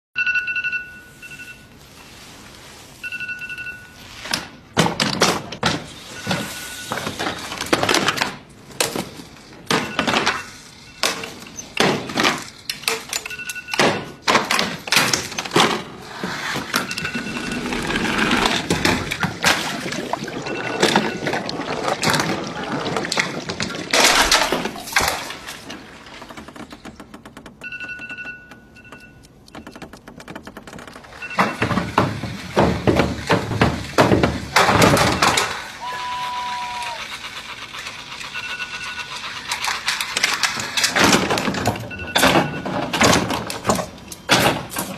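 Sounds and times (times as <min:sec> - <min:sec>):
short electronic beep: 0:00.2 - 0:01.7, 0:03.0 - 0:04.1, 0:16.8 - 0:19.0
objects knocking and clattering: 0:04.7 - 0:35.8, 0:39.2 - 0:44.9.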